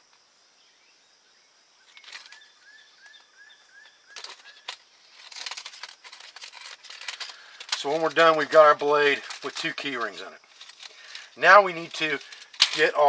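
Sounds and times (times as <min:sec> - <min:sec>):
bird chirping: 0:00.6 - 0:05.7.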